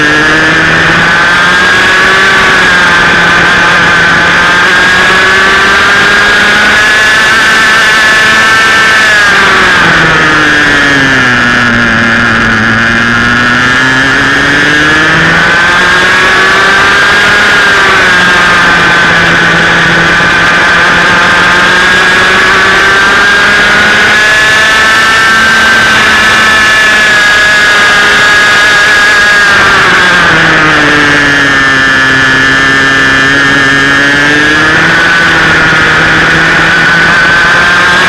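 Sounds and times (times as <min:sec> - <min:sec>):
kart engine racing: 0:00.0 - 0:38.0.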